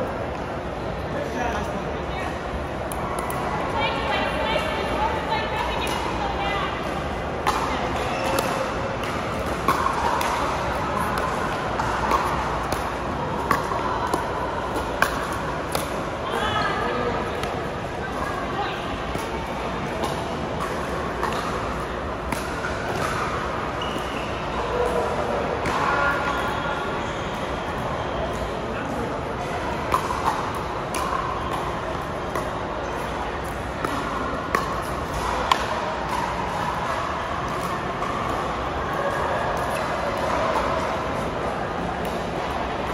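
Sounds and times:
paddles hitting pickleball: 5.6 - 16.2, 19.0 - 26.6, 28.9 - 42.9.

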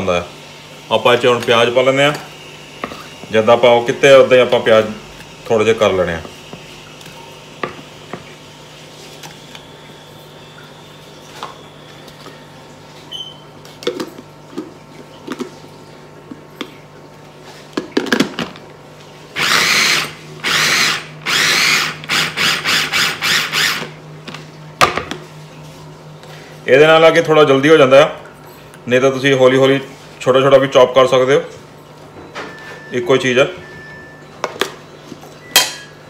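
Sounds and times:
food chopper motor and blade: 19.4 - 24.0.

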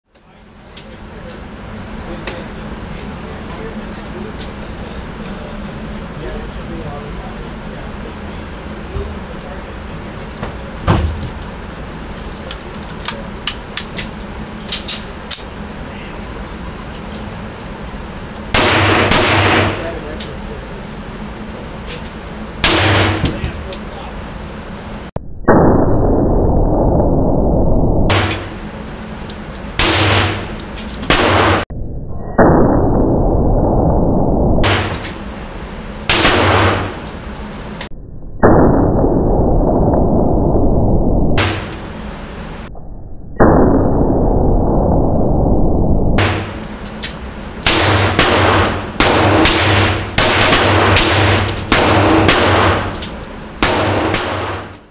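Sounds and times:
pistol shots: 18.6 - 20.0, 22.6 - 23.5, 29.8 - 30.5, 36.1 - 37.0, 47.6 - 53.0, 53.6 - 54.8.

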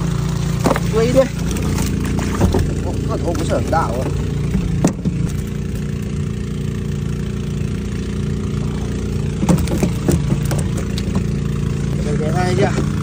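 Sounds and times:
engine-driven water pumps running: 0.0 - 13.0.

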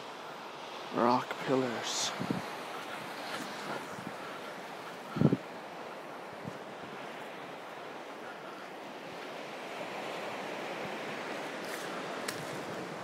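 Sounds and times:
ocean surf washing on beach: 0.0 - 13.0.

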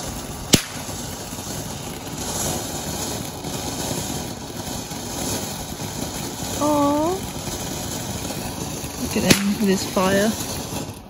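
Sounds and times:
firework spraying sparks hiss: 0.0 - 11.0
sharp pop: 0.5 - 0.9, 9.3 - 9.6.

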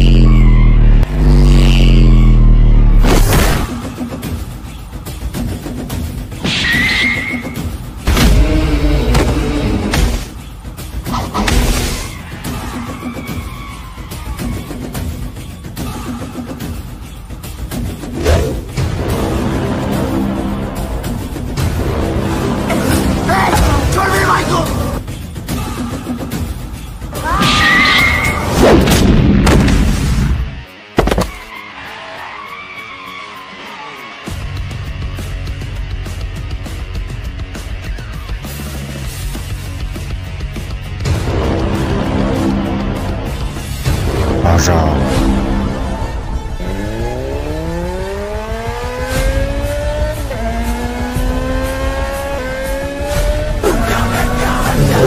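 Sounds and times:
motorcycle engine accelerating: 0.0 - 3.0, 46.4 - 55.0
background music: 0.3 - 55.0.

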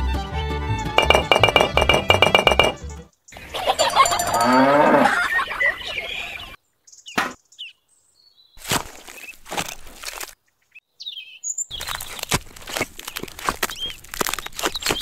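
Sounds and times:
plucked clinking background music: 1.0 - 3.0, 3.8 - 4.6
farm animal call: 3.8 - 6.5.

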